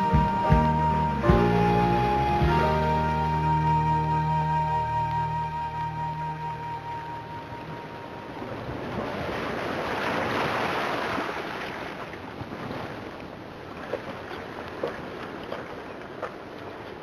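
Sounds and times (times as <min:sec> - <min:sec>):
music note: 0:00.0 - 0:08.2
surf rushing: 0:00.0 - 0:15.0.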